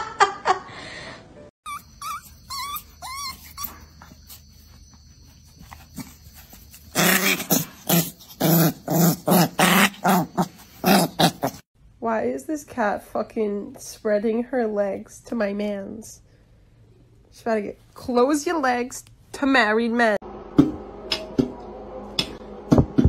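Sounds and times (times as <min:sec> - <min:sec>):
dog whining: 0:01.6 - 0:04.8
dog growling and barking: 0:06.8 - 0:11.7.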